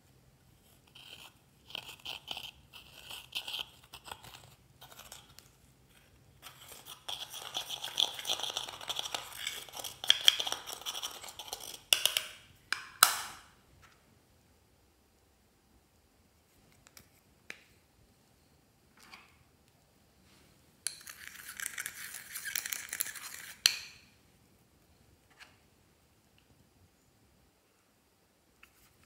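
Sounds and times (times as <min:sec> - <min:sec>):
metal tool scraping eyeshadow: 0:00.6 - 0:11.9.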